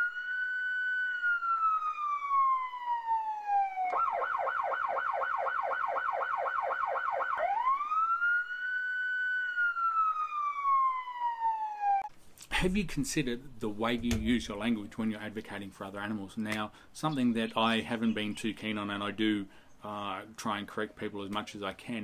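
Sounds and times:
police siren wailing and yelping: 0.0 - 12.1.

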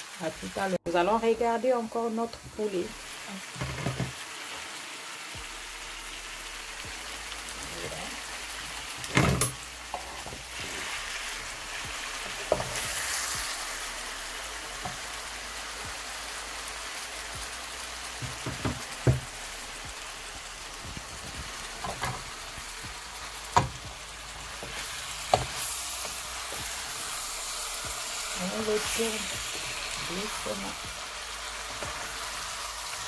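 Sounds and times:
food sizzling in a pan: 0.0 - 33.0
wooden spatula stirring pan: 24.6 - 30.6.

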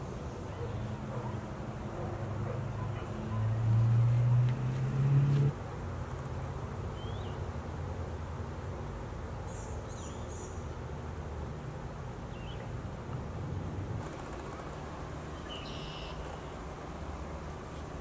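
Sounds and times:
low hum rising in pitch: 3.1 - 5.6.

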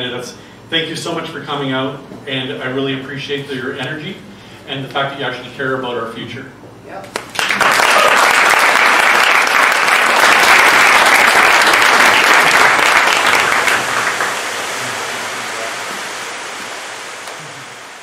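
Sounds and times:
audience applauding: 7.1 - 16.4.

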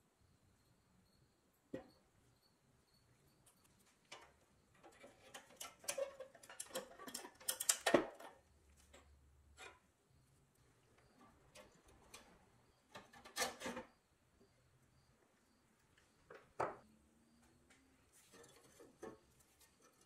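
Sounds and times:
tool clicking and scraping metal: 3.5 - 9.8, 11.2 - 13.9, 18.2 - 20.0.

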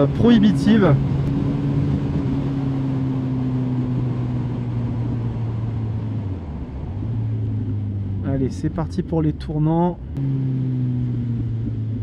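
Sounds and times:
wind rush: 0.0 - 8.3
motorcycle engine cruising: 0.0 - 12.0.

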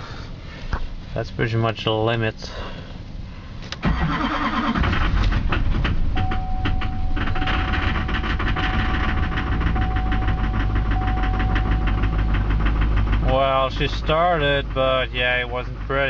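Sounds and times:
diesel engine running rough: 3.8 - 16.0.

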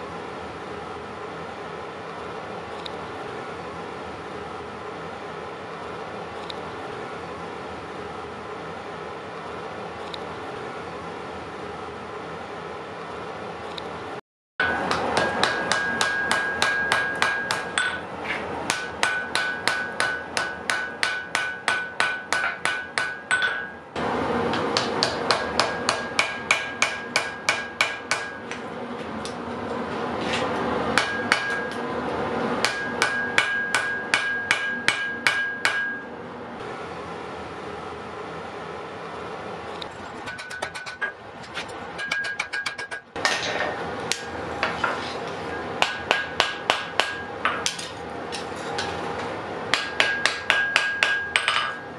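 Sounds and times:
anvil ringing: 14.6 - 18.1, 18.7 - 23.8, 32.6 - 36.1, 49.7 - 51.9
hammer striking hot iron: 14.6 - 23.8, 24.5 - 28.6, 31.0 - 31.8, 32.6 - 36.1, 40.2 - 41.2, 42.0 - 49.0, 49.7 - 51.9.

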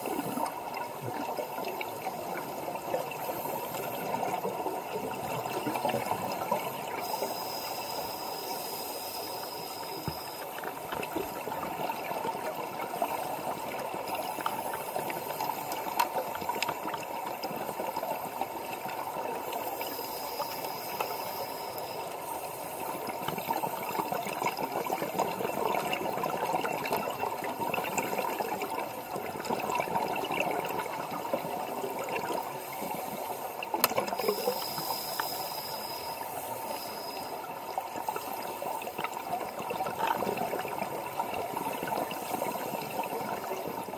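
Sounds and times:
underwater bubbling from regulators: 9.5 - 43.9.

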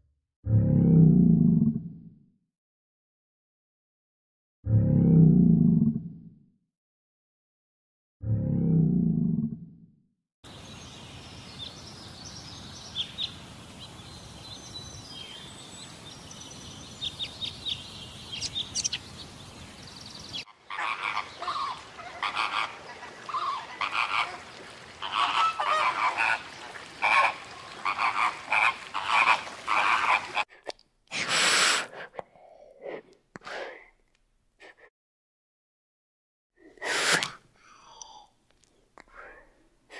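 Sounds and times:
faint high bird chirps: 12.4 - 20.5
rapid repeated animal calls: 20.4 - 30.5.

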